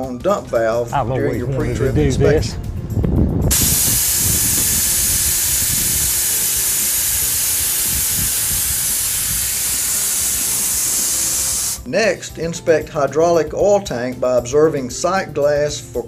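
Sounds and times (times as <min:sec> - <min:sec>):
compressed air hissing: 0:03.5 - 0:11.9.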